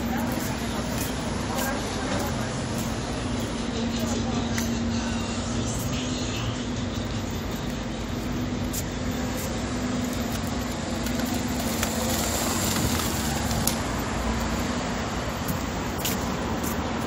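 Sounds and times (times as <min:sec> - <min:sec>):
road traffic: 0:00.0 - 0:17.0.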